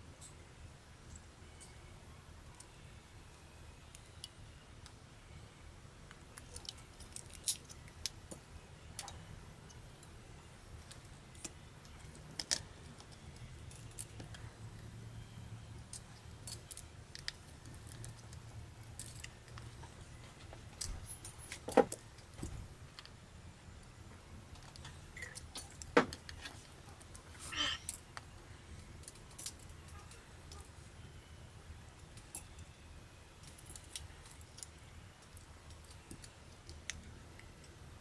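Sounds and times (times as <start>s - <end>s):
faint low hum: 0.0s - 38.0s.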